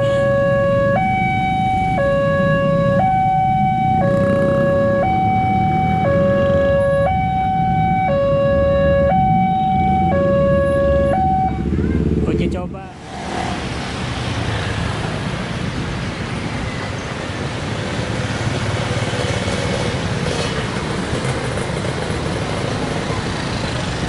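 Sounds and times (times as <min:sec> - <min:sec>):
two-tone level crossing alarm: 0:00.0 - 0:11.7
motorcycles: 0:00.0 - 0:24.0
road traffic: 0:00.0 - 0:24.0.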